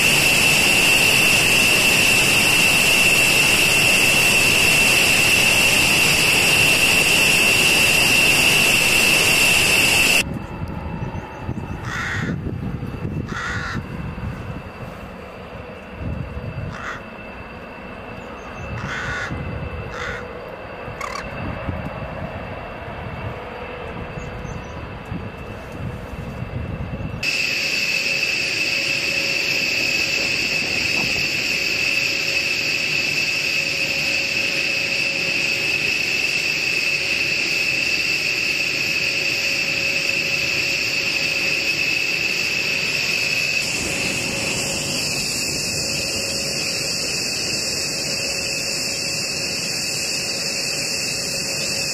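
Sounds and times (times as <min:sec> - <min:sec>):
jet engines whining: 0:00.0 - 0:51.9
crows cawing: 0:11.8 - 0:12.4, 0:13.3 - 0:13.8, 0:16.7 - 0:17.1, 0:18.8 - 0:20.3, 0:21.0 - 0:21.3
low rumble: 0:43.5 - 0:47.7.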